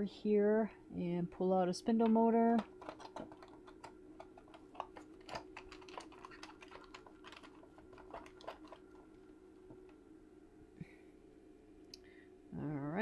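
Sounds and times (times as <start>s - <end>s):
faint hum: 0.0s - 13.0s
small parts clicking and tapping: 1.9s - 10.0s.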